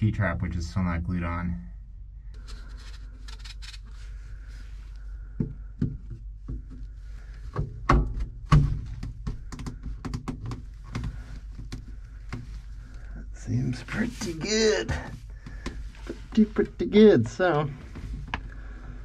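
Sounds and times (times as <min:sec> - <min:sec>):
steady low hum: 0:00.0 - 0:19.0
hollow plastic knocks and clicks: 0:05.4 - 0:06.9, 0:07.5 - 0:12.6.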